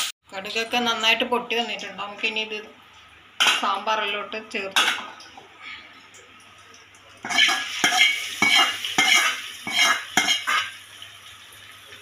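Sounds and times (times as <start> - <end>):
hot oil sizzling: 0.0 - 5.4, 6.7 - 12.0
metal spoon scraping metal pan: 7.3 - 10.7.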